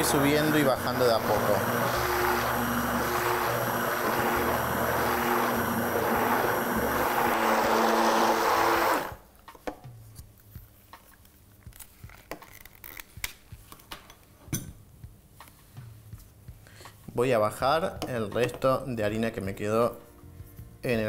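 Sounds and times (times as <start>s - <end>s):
immersion blender running in batter: 0.0s - 9.2s.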